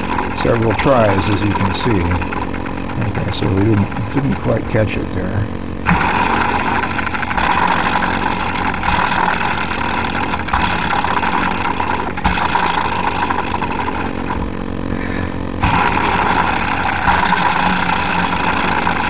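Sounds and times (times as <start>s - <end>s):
constant low hum: 0.0s - 19.0s
motor whirring: 0.0s - 19.0s.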